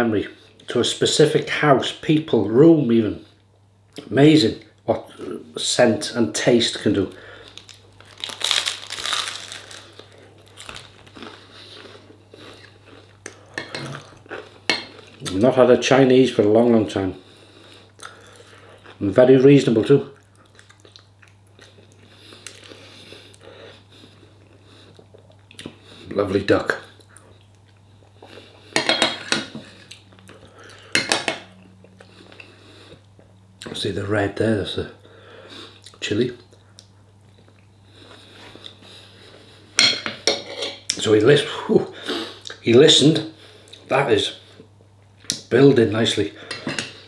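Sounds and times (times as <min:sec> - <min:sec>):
crunchy bite into toast: 0:07.5 - 0:11.4
chewing: 0:20.2 - 0:23.4.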